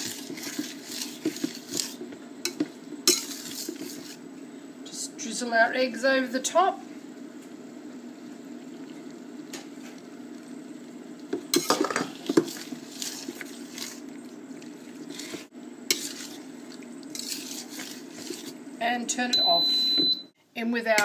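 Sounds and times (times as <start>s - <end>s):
utensil stirring pasta in pan: 0.0s - 4.5s, 9.0s - 18.8s.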